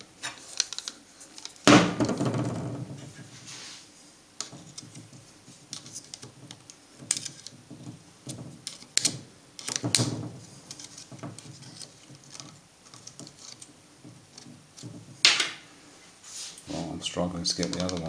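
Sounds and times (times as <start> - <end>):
screwdriver clicking and scraping plastic: 0.0 - 1.6, 5.7 - 7.6, 8.3 - 10.1, 10.7 - 13.7, 17.5 - 18.0.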